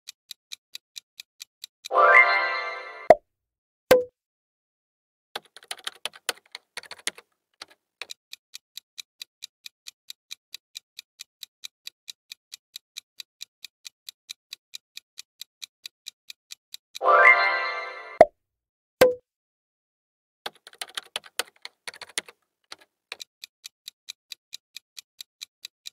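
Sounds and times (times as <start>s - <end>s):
clock ticking: 0.0s - 2.3s, 5.4s - 17.4s, 20.5s - 25.9s
pitched time-up sound effect: 1.9s - 3.2s, 17.0s - 18.3s
keyboard-like clicks: 5.4s - 17.1s, 20.5s - 25.9s.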